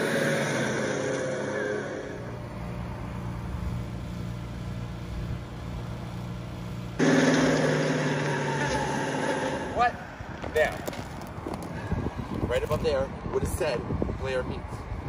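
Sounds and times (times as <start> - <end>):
loud full noise: 0.0 - 2.8, 7.0 - 10.4
low mechanical hum: 0.0 - 15.0.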